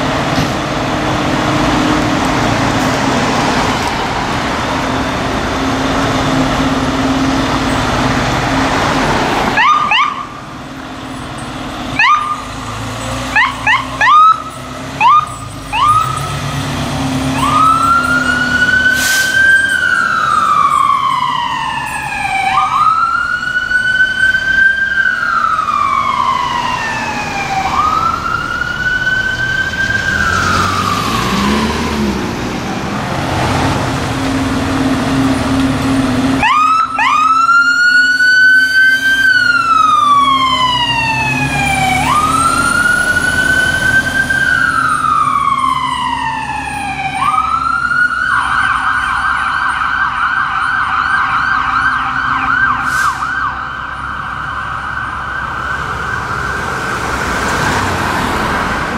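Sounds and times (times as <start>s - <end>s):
electronic siren wailing: 9.3s - 10.5s, 12.0s - 12.6s, 13.3s - 16.3s, 17.3s - 32.2s, 36.4s - 56.6s
siren fast yelp: 9.6s - 10.4s, 12.0s - 12.4s, 13.3s - 16.2s, 17.3s - 23.8s.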